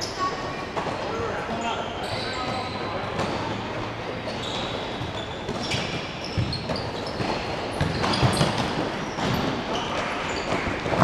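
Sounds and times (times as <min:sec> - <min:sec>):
shoes squeaking on court: 0:00.0 - 0:03.6, 0:04.2 - 0:11.0
ball bouncing on court: 0:05.0 - 0:09.5.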